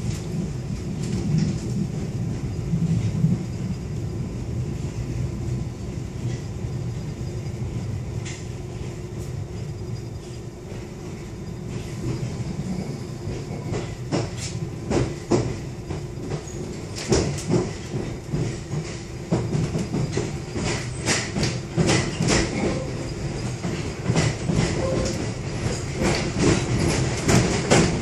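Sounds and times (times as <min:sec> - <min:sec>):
train rumbling on track: 0:00.0 - 0:28.0.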